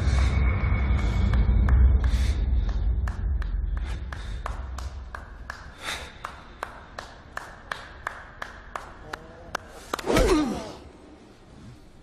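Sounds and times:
deep rumble: 0.0 - 5.5.

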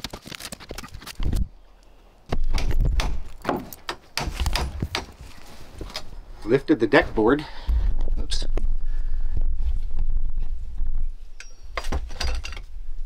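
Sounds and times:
knocks and thumps on wood: 2.3 - 5.3.

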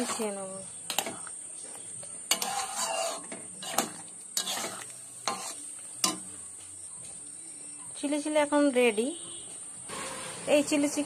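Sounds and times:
metal spatula stirring thick gravy: 1.8 - 6.4.

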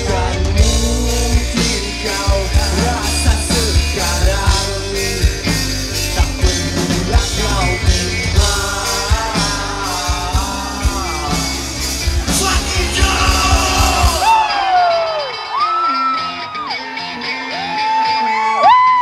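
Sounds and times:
person singing: 0.0 - 18.9
live band playing loud: 0.0 - 19.0.

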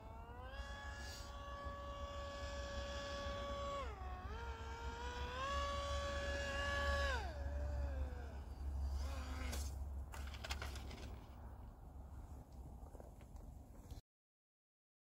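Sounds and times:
model jet electric motor whining: 0.0 - 11.1.

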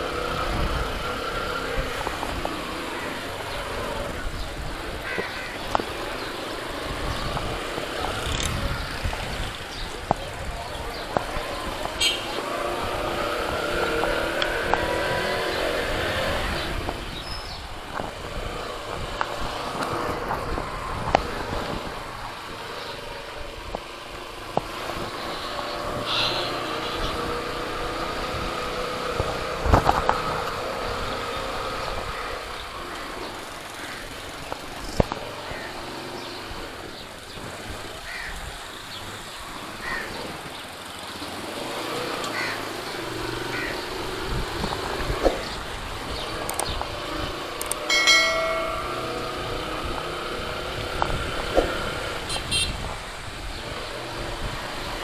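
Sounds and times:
motorcycle engine accelerating: 0.0 - 5.0, 5.7 - 33.0, 41.2 - 55.0
sharp clicks: 47.6 - 47.9.

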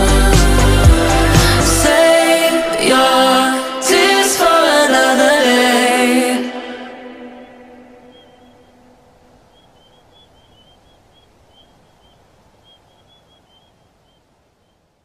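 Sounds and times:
faint high chirps: 7.3 - 14.9.

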